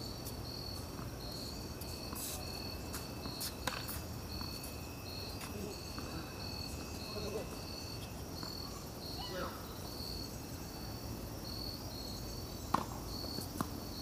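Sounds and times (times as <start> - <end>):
crickets chirping: 0.0 - 14.0
insect trill: 0.0 - 14.0.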